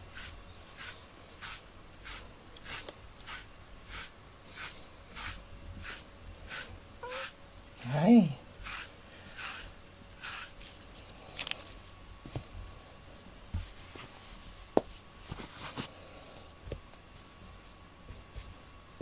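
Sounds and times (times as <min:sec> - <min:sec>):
comb scratching through cat fur: 0:00.0 - 0:07.9, 0:08.6 - 0:11.8.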